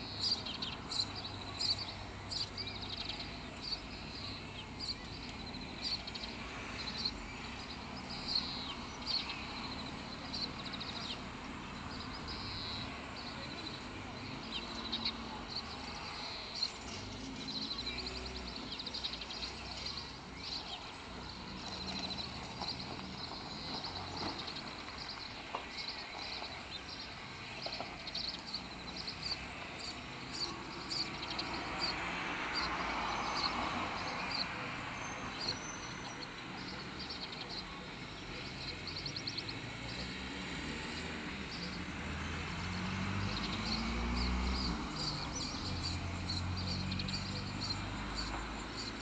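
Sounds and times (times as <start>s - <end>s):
small birds chirping: 0.0s - 49.0s.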